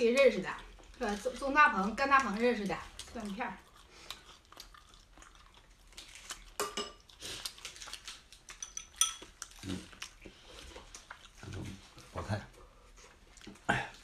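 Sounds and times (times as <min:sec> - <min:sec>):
chopsticks clicking and scraping: 0:06.0 - 0:10.2.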